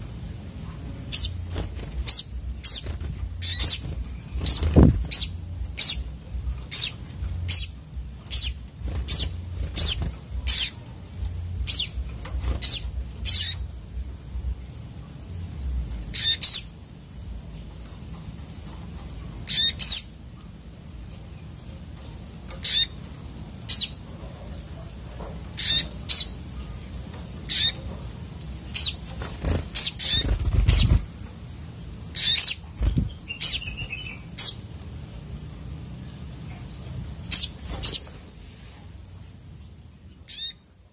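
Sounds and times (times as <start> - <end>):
sunbirds chirping: 0.0 - 40.9
birds thudding on perches: 0.8 - 14.6, 21.6 - 31.3, 32.2 - 34.1, 37.3 - 38.9
bird wings fluttering: 1.4 - 5.4, 29.0 - 31.1, 32.8 - 33.2.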